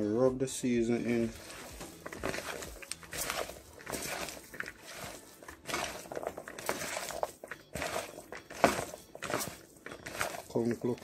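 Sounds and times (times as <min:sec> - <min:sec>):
hand squishing food in plastic bowl: 0:01.1 - 0:11.0.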